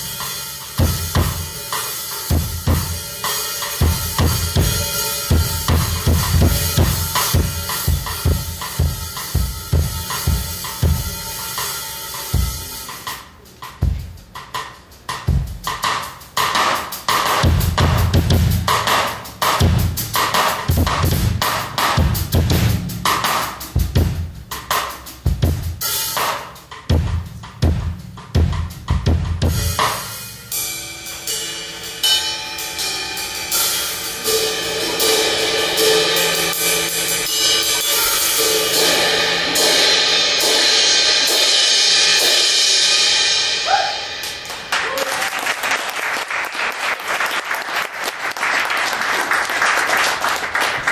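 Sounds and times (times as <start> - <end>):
kick drum and tom hits: 2.3 - 3.0, 3.8 - 11.2, 19.6 - 23.1, 26.9 - 29.9
cymbal wash: 29.6 - 44.6.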